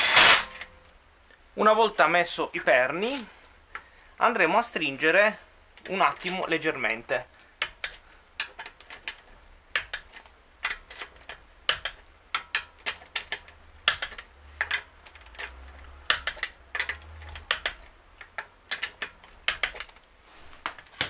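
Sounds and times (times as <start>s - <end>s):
socket ratchet clicking: 7.6s - 20.0s.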